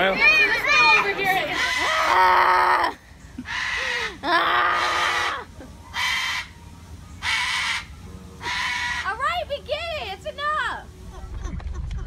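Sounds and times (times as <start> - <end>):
cockatoo screeching: 1.4 - 6.6, 7.2 - 9.2.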